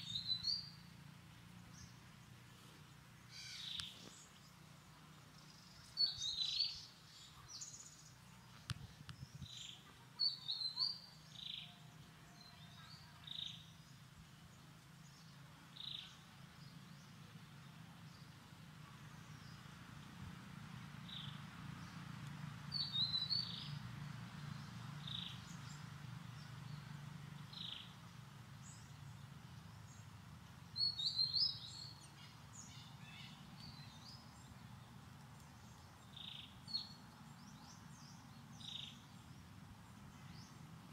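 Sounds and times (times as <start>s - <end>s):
bird twittering: 3.3s - 4.0s
low steady hum: 11.0s - 40.9s.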